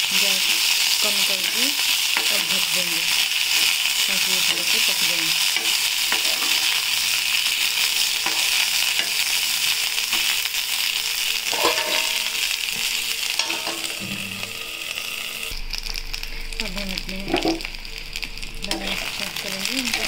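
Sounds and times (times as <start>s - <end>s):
vegetables sizzling in hot oil: 0.0s - 20.0s
steel ladle scraping and tapping: 11.5s - 12.3s, 13.4s - 14.2s
metal clink: 11.5s - 12.4s.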